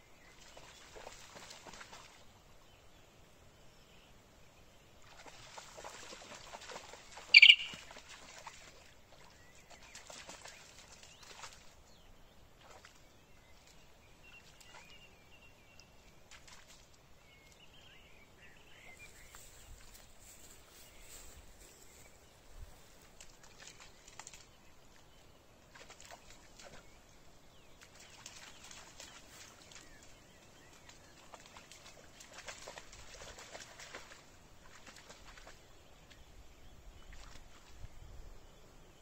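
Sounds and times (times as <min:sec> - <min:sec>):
dog splashing through water: 0:00.3 - 0:02.2, 0:05.0 - 0:11.8, 0:12.6 - 0:15.0, 0:16.2 - 0:17.0, 0:23.1 - 0:24.6, 0:25.7 - 0:27.0, 0:27.8 - 0:35.7, 0:37.0 - 0:37.8
small birds chirping: 0:03.8 - 0:39.0
short high-pitched call: 0:07.4 - 0:07.8.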